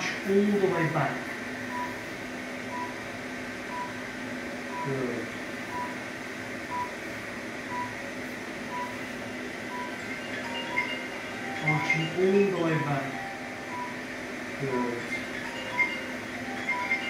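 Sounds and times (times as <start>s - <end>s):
steady electrical hum: 0.0s - 17.0s
short electronic beeps: 2.7s - 3.0s, 4.7s - 5.0s, 5.7s - 6.0s, 8.7s - 9.0s, 9.7s - 17.0s.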